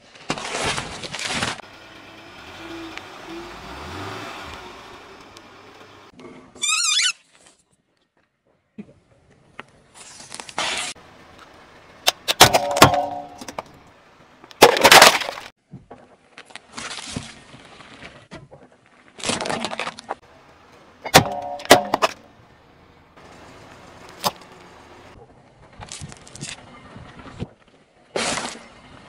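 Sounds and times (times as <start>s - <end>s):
tyre on asphalt: 0.0s - 22.5s.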